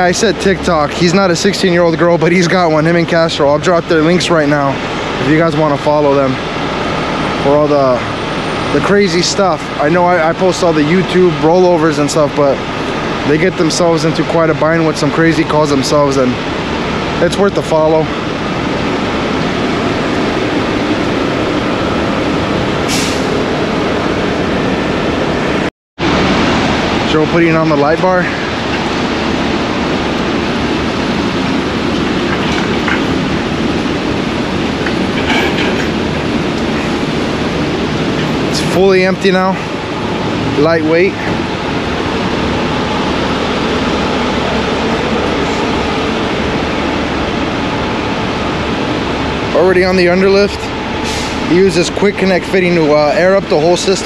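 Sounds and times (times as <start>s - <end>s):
diesel engine idling: 0.0s - 54.0s
heavy trucks running: 0.0s - 54.0s
air hiss: 51.0s - 51.5s.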